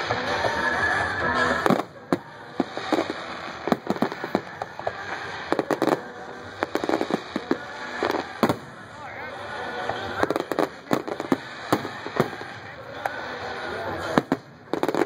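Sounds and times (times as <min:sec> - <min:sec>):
fireworks bangs and pops: 0:00.0 - 0:15.0.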